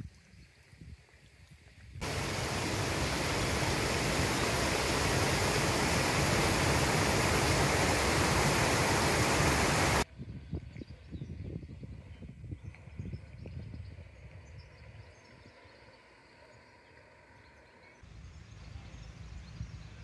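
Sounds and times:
mountain stream rushing: 2.0s - 10.0s.

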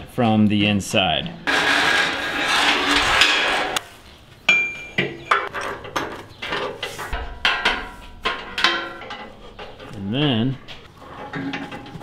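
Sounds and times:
steel cable clanking against metal: 4.5s - 12.0s.

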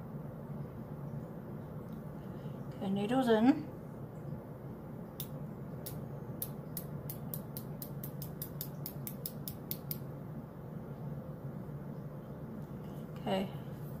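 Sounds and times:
low steady hum: 0.0s - 14.0s
injector pen clicking: 5.2s - 10.0s.

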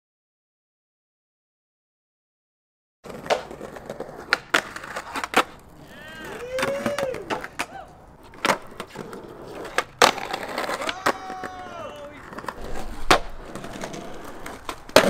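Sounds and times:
skateboard wheels rolling: 3.0s - 15.0s
skateboard deck clacking: 3.1s - 15.0s
skateboard sliding squeal: 4.1s - 14.7s.

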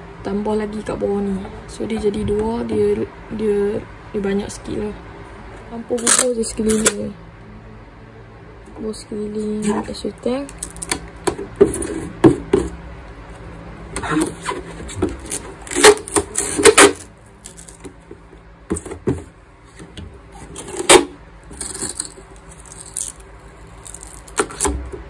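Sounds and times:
packing tape ripping off roll: 6.0s - 7.0s, 10.5s - 11.0s, 15.2s - 17.9s, 20.6s - 24.8s.

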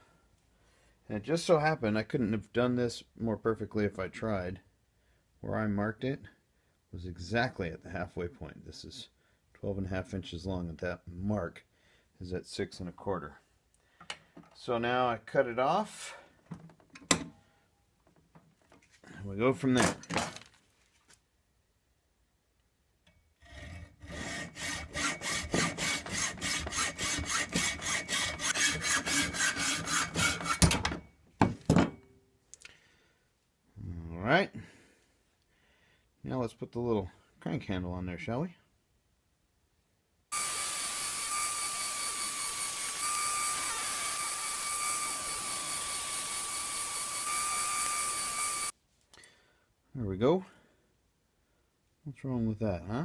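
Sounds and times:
hacksaw cutting metal rod: 23.5s - 30.9s
belt sander whining: 24.3s - 30.8s, 40.3s - 48.7s.

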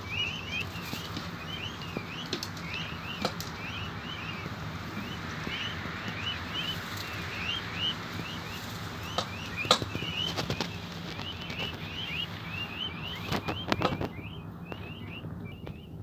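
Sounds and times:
chicks peeping: 0.0s - 16.0s.

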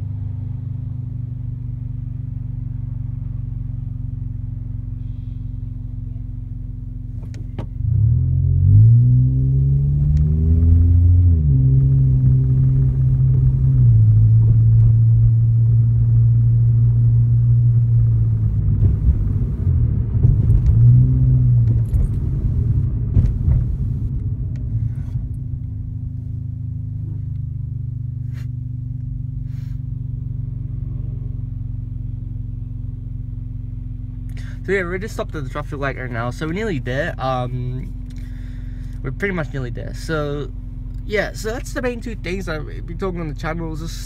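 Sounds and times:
car engine from inside cabin: 0.0s - 44.0s.

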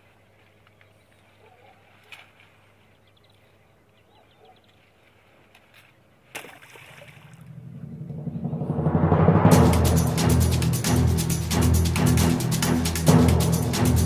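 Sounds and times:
faint bird calls: 0.0s - 6.3s
splash in water: 1.8s - 2.6s, 5.8s - 7.6s.

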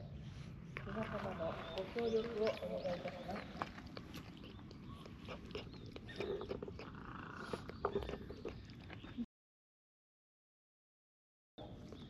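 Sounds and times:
cat lapping water: 2.6s - 9.2s.

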